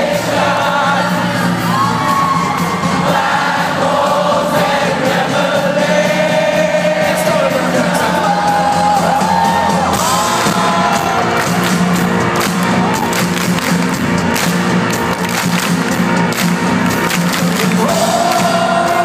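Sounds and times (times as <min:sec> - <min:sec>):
audience singing along: 0:00.0 - 0:12.4, 0:17.6 - 0:19.0
steady drum beat: 0:00.0 - 0:19.0.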